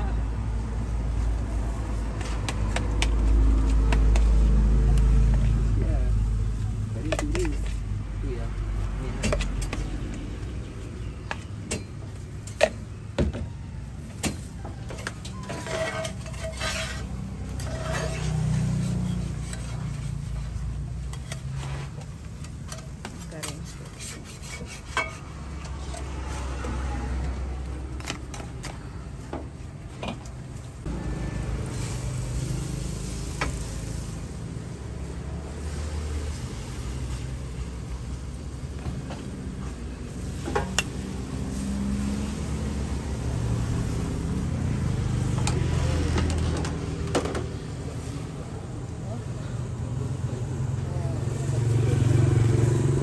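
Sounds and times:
metal utensils scraping griddle pans: 14.3s - 26.6s.

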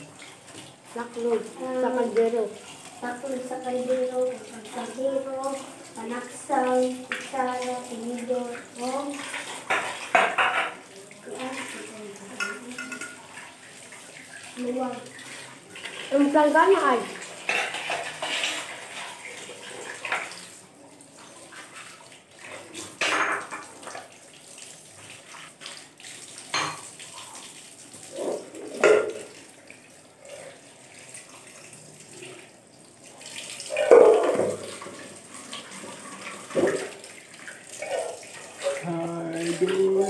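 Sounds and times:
tap water running into sink: 0.0s - 40.0s
dishes and pot clattering: 9.3s - 10.9s, 12.3s - 13.4s, 17.4s - 19.1s, 22.8s - 24.0s, 26.5s - 27.0s, 28.2s - 29.3s, 33.7s - 35.0s.

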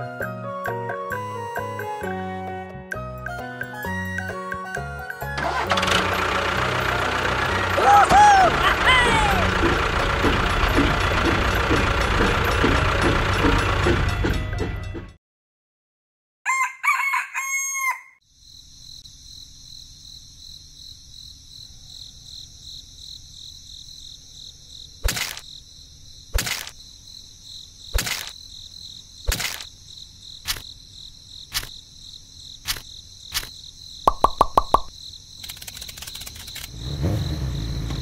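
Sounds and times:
rooster crowing: 16.4s - 18.2s
high insect-like chirring: 22.7s - 37.8s
toy set into sand clicks: 26.4s - 26.8s, 28.0s - 28.4s, 29.3s - 29.7s, 30.4s - 30.6s, 31.5s - 31.7s, 32.6s - 33.5s, 34.1s - 36.8s.

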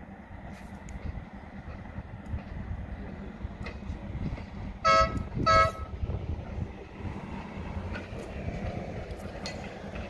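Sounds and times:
moving train rumble: 0.0s - 10.0s
locomotive air horn blasts: 4.8s - 6.0s.

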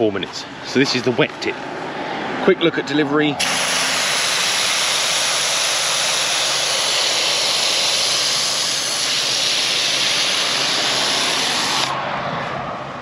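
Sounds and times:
foam sprayer hissing: 3.4s - 12.0s.

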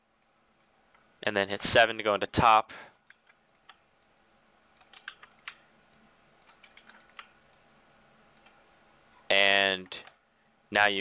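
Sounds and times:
computer keyboard keystrokes: 3.0s - 3.8s, 4.8s - 5.6s, 6.4s - 7.6s.

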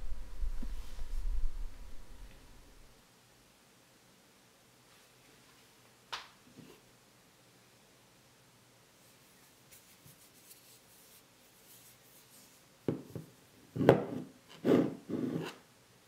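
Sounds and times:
stone knocking on countertop: 12.9s - 14.2s
rock scraping on hard surface: 13.8s - 15.6s.

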